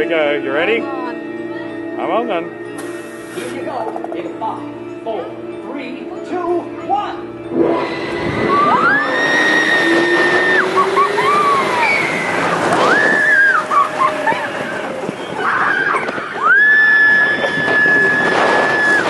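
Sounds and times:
low whine rising in pitch: 7.4 - 19.0
rush of wind and track noise: 7.5 - 19.0
riders screaming: 8.4 - 19.0.

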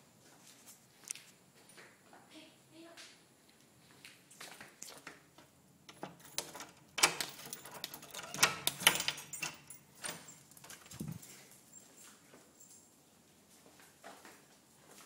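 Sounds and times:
door handle clicking and rattling: 5.9 - 11.2.

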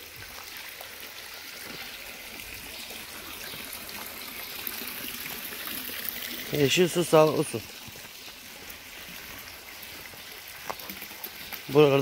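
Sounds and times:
water trickling into pond: 0.0 - 12.0.

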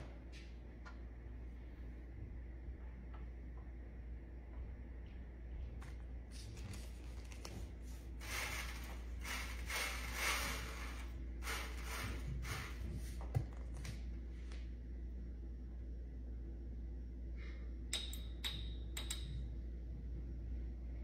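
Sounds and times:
salt pouring onto ice: 8.2 - 12.7.

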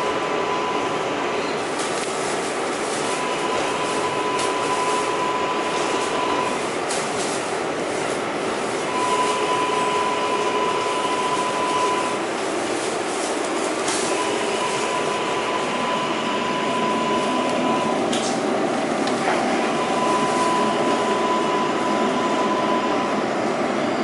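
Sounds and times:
subway wheels rumbling on rail: 0.0 - 24.0
steady high tone: 14.0 - 18.6.

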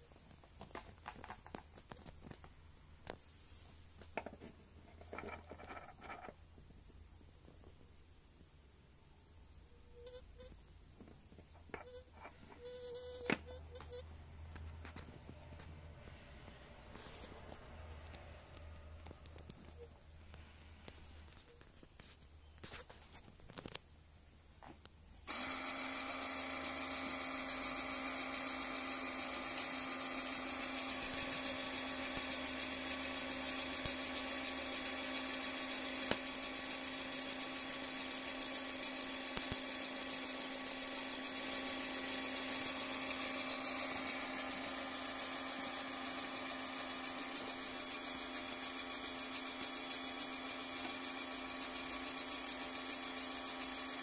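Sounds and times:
electrical whine with low hum: 1.1 - 21.8.

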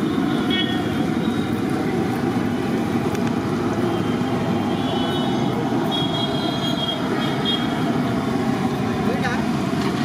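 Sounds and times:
low rumble of street noise: 0.0 - 10.0.

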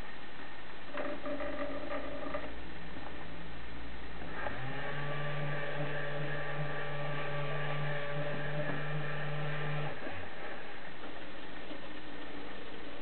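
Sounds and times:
small electric motor humming: 4.3 - 10.6.

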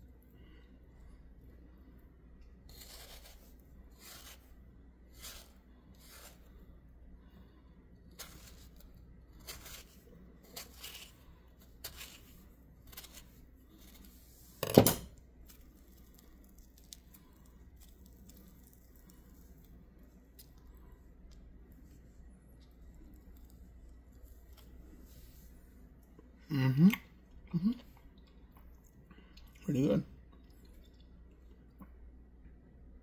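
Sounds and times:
knife slicing through mango: 2.7 - 4.5, 5.1 - 6.5, 8.1 - 14.2.

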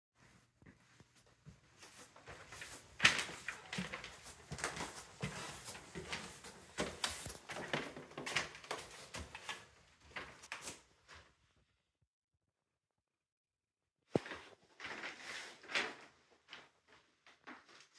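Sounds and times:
footsteps: 0.2 - 11.2
paper crinkling underfoot: 1.8 - 11.2.

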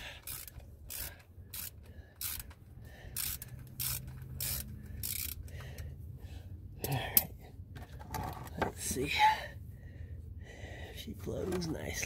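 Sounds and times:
ratchet wrench clicking: 0.0 - 5.9
low steady hum: 0.0 - 12.0.

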